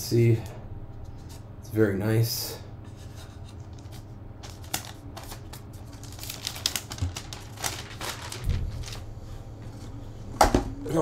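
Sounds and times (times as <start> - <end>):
paper crinkling and rustling: 3.1 - 9.8.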